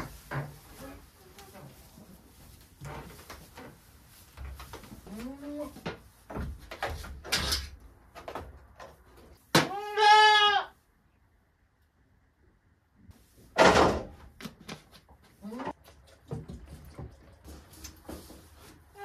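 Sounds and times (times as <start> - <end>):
goat kid bleating: 9.5 - 10.8.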